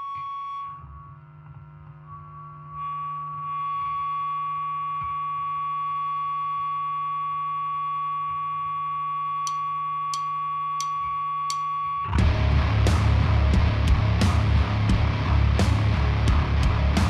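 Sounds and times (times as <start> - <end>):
rock band with distorted guitars: 12.0 - 17.0.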